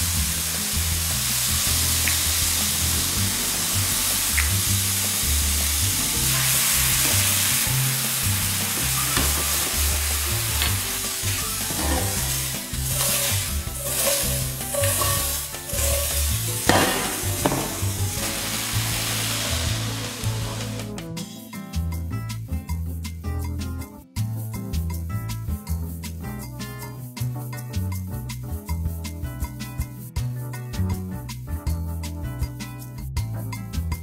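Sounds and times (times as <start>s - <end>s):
mushrooms sizzling in a frying pan: 0.0s - 20.9s
spatula scraping a pan: 9.0s - 20.2s.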